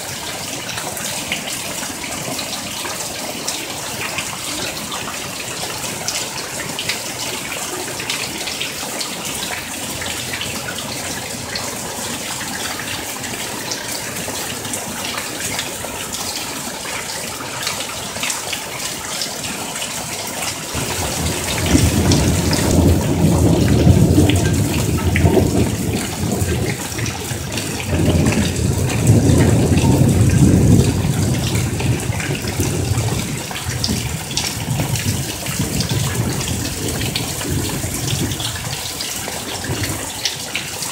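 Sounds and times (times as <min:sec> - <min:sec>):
heavy rain downpour: 0:00.0 - 0:40.9
water pouring off roof: 0:00.0 - 0:40.9
deep rolling thunder: 0:20.8 - 0:38.8.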